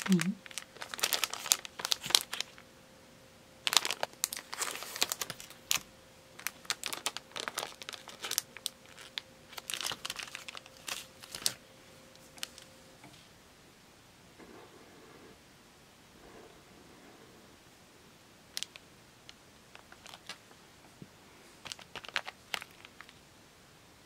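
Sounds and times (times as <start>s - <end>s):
plastic bag crinkling: 0.0s - 2.6s, 3.6s - 11.6s, 12.2s - 12.7s, 18.5s - 18.8s, 19.7s - 20.5s, 21.6s - 23.2s.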